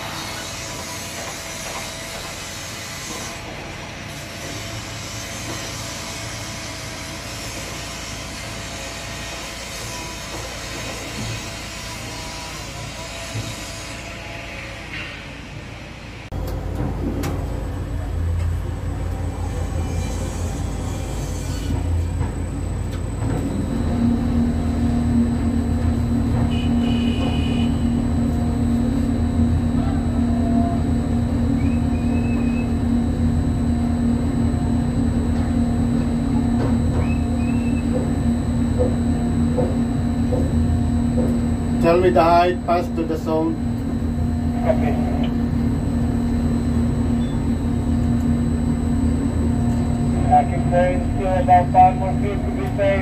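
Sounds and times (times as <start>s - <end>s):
crane mechanical hum: 0.0s - 53.0s
faint steady whine: 21.7s - 53.0s.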